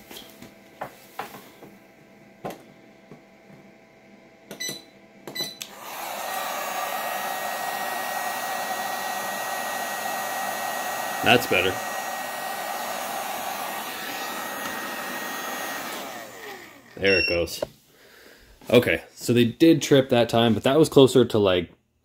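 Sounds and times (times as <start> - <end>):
heater fan whirring: 0.0 - 21.5
short beeps: 17.0 - 17.6.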